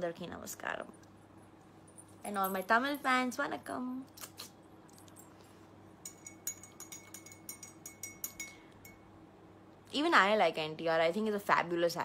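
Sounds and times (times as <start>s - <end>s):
teaspoon clinking against cup: 6.0s - 9.1s.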